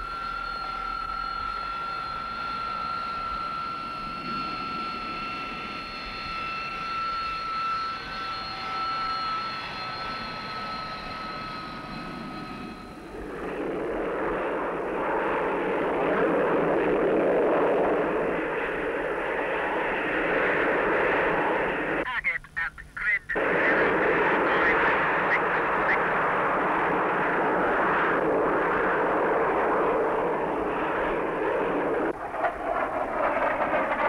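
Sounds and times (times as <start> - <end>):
jet engine high-pitched whine: 0.0 - 22.1, 23.3 - 34.0
rushing jet roar: 23.4 - 34.0.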